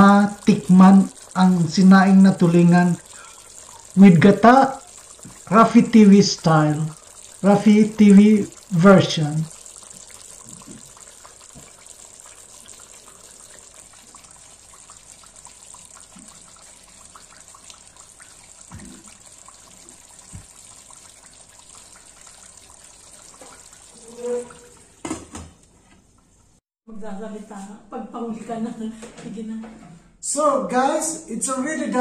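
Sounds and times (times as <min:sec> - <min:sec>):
sauce simmering with small pops: 0:00.2 - 0:01.4, 0:02.8 - 0:06.0, 0:06.7 - 0:23.9.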